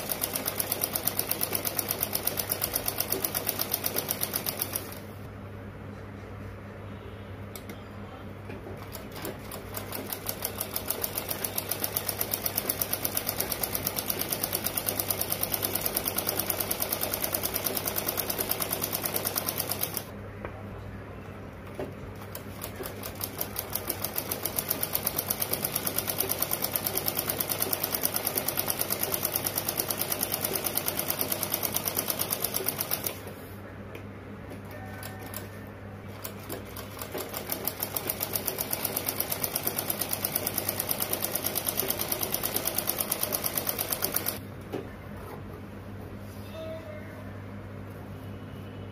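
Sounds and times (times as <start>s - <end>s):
sewing machine stitching: 8.9s - 20.1s.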